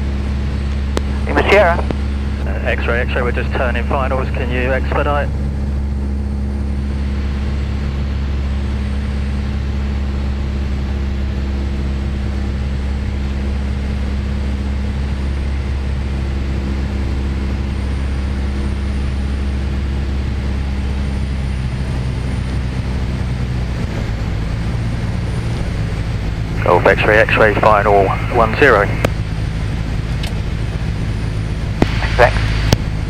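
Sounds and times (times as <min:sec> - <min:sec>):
aircraft engine and propeller drone: 0:00.0 - 0:33.0.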